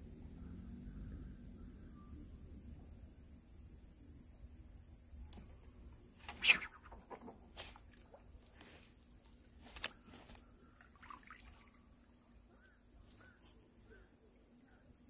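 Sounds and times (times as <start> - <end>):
water splashes and drips: 9.7 - 12.1.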